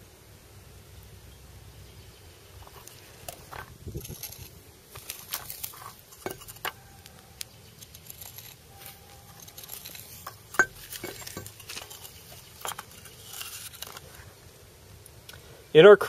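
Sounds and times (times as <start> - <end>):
metal spoon scraping and clinking: 4.0 - 6.8, 7.7 - 14.0.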